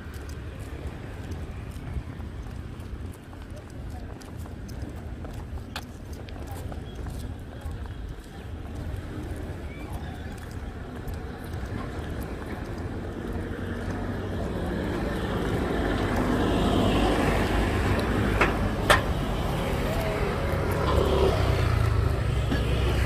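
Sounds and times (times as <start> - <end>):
vehicle engine humming: 11.0 - 23.0.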